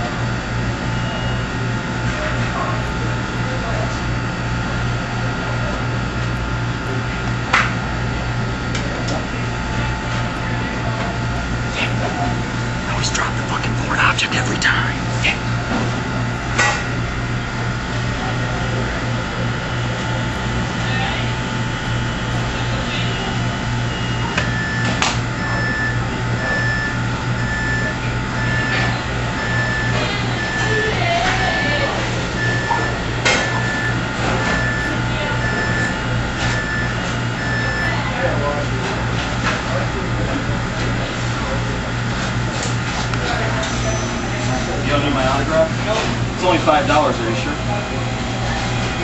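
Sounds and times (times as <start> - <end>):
low mechanical hum: 0.0 - 49.0
electronic alarm beeping: 23.2 - 38.1.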